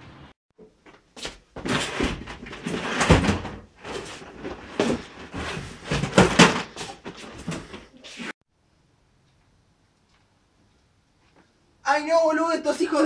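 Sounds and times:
knocks and bangs in wardrobe: 0:01.6 - 0:07.7.

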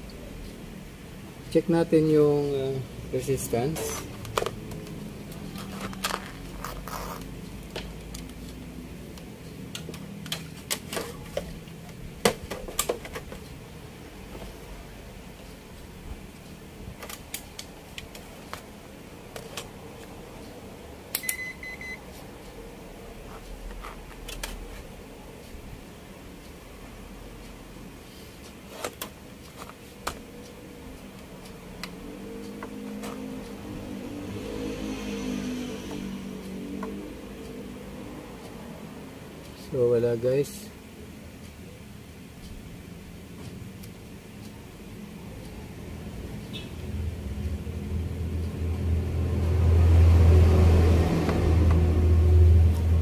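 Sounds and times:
low steady hum: 0:00.0 - 0:53.0
multimeter probes clicking and knocking: 0:03.7 - 0:13.6, 0:23.6 - 0:24.6.

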